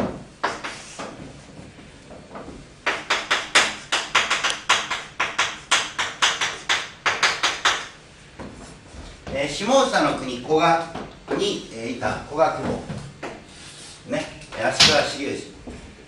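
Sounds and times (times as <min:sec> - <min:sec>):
chalk strokes on blackboard: 0:00.4 - 0:01.1.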